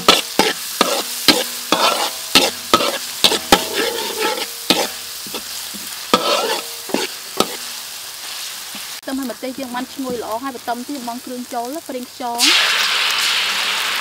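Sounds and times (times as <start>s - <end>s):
spatula scraping a wok: 0.0s - 9.0s
garlic sizzling in oil: 0.0s - 14.0s.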